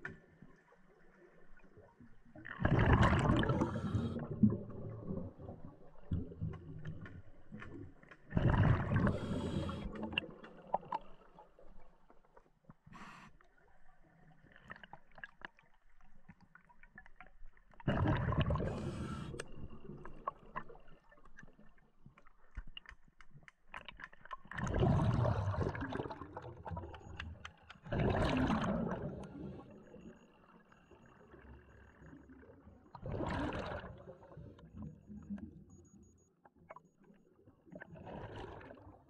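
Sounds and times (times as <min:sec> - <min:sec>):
underwater breath bubbles: 0:02.4 - 0:06.6, 0:08.2 - 0:11.3, 0:17.8 - 0:20.8, 0:24.5 - 0:27.2, 0:27.8 - 0:30.3, 0:32.9 - 0:35.3, 0:37.7 - 0:39.0
faint clicks and ticks: 0:06.0 - 0:17.9, 0:18.8 - 0:32.7.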